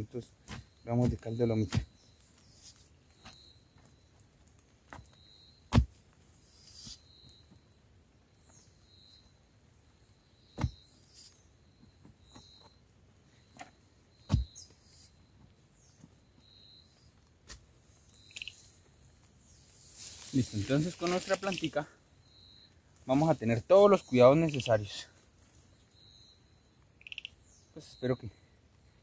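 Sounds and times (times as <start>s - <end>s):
heavy thuds: 14.3s - 14.6s.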